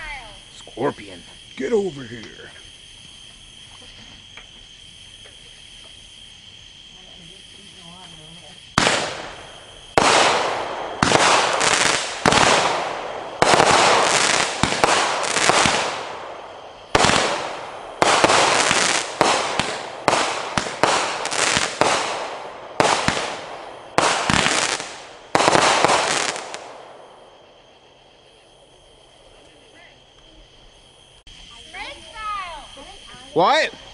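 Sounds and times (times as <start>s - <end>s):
crackling firework tail: 0.0s - 33.1s
firework shots bursting: 8.7s - 27.2s.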